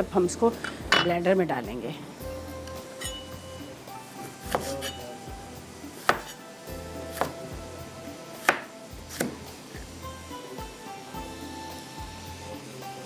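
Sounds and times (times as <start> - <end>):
knife chopping on wooden board: 4.5 - 5.0, 6.0 - 6.4, 7.1 - 7.4, 8.4 - 9.4.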